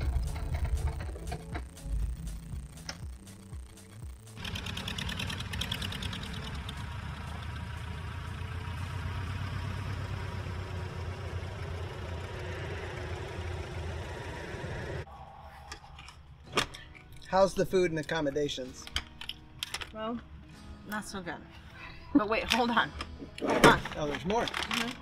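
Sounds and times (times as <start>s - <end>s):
light aircraft piston engine: 4.4s - 15.1s.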